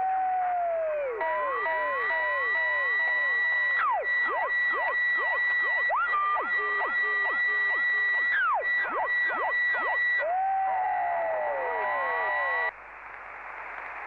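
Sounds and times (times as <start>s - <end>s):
low held electronic tone: 1.0s - 10.3s
high electronic whistle with swooping glides: 1.2s - 10.3s.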